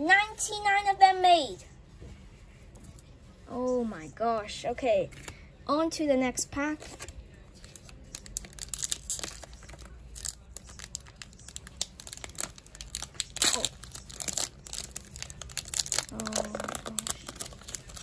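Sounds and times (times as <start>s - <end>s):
foil pack tearing and crinkling: 8.1s - 18.0s.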